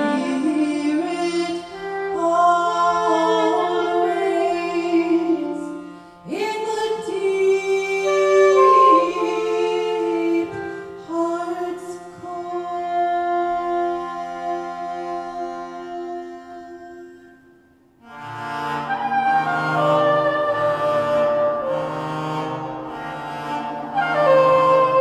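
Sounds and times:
woman singing into a microphone: 0.0s - 16.9s.

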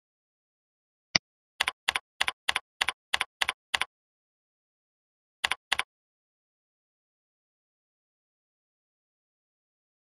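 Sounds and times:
keyboard keystrokes: 5.4s - 5.9s.

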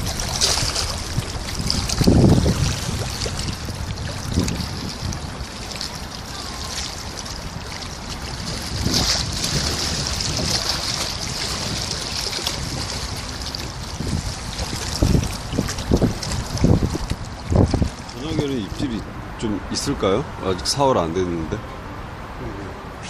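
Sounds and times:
gusty low thumps: 0.0s - 5.5s, 8.0s - 11.9s, 13.8s - 18.1s
water lapping against stone bank: 0.0s - 19.1s
wind buffeting microphone: 0.0s - 23.0s.

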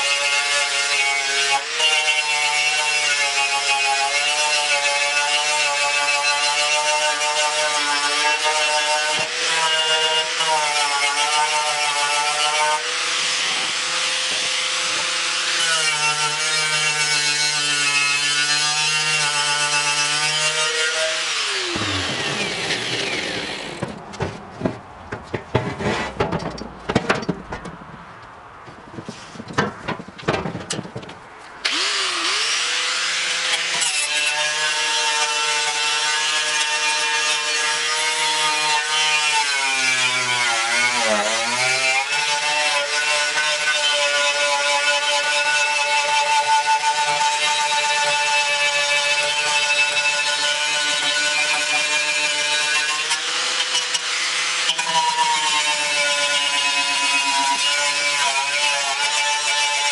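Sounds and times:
grinder winding down: 20.5s - 24.0s, 31.7s - 33.1s, 55.2s - 58.4s
metal grille knocking and clattering: 23.8s - 27.9s
angle grinder wire brush scratching: 49.4s - 59.9s.

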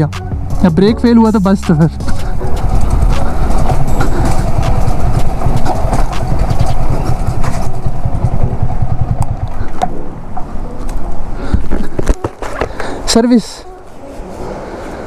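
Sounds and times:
motorcycle engine running at low speed: 1.6s - 10.5s.

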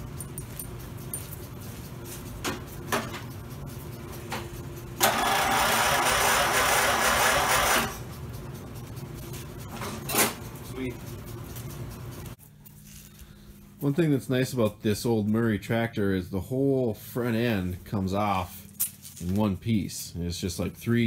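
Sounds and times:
electric starter cranking engine: 5.0s - 8.0s.

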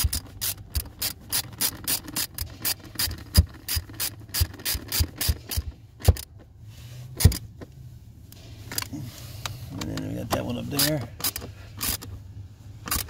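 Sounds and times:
ratchet wrench clicking: 0.0s - 6.3s, 10.7s - 12.1s.

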